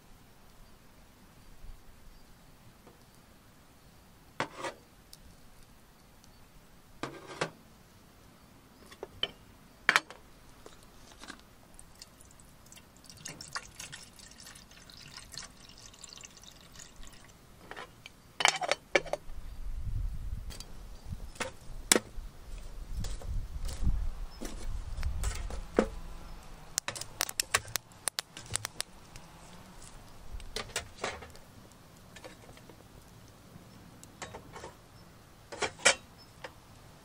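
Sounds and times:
water pouring into metal kettle: 11.9s - 17.4s.

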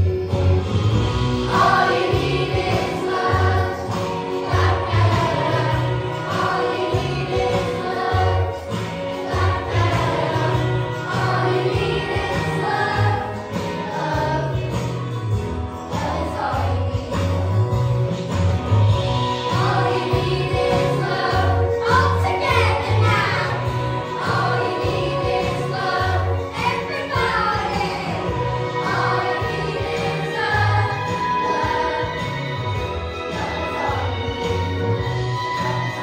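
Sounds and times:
backing music with bass pulse: 0.0s - 36.0s
children singing in unison: 1.5s - 14.8s, 19.6s - 34.5s.

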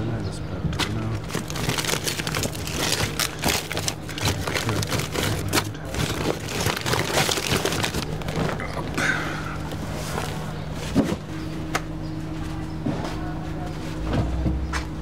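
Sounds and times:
steady low hum: 0.0s - 15.0s
plastic bags crinkling: 1.1s - 10.4s.

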